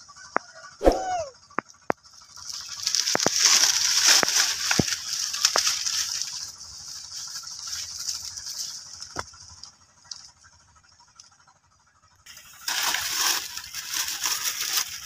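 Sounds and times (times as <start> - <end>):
dry leaves rustling: 2.0 - 11.1, 12.3 - 15.0.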